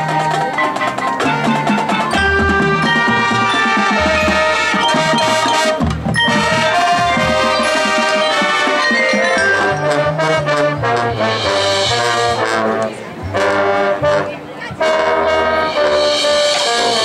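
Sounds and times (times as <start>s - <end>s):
mallet percussion: 0.0s - 12.1s
drums: 0.0s - 17.0s
winds and low brass chords: 1.2s - 17.0s.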